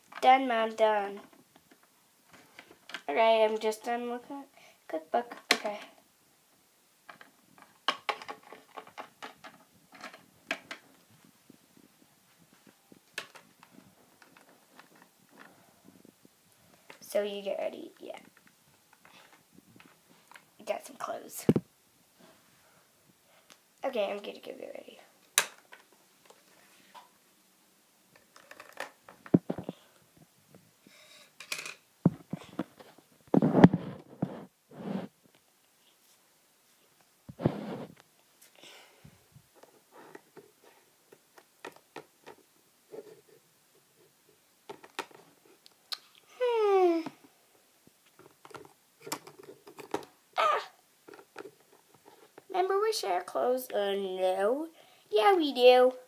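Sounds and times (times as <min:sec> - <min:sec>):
plastic toys being handled: 0:00.0 - 0:03.6, 0:07.0 - 0:21.6, 0:23.5 - 0:27.2, 0:28.1 - 0:30.2, 0:30.8 - 0:35.2, 0:39.5 - 0:53.3
plastic toys clicking and tapping: 0:07.1 - 0:10.8, 0:28.2 - 0:29.7, 0:31.4 - 0:31.8, 0:41.1 - 0:42.4, 0:44.7 - 0:45.2, 0:48.1 - 0:50.1, 0:51.0 - 0:52.4.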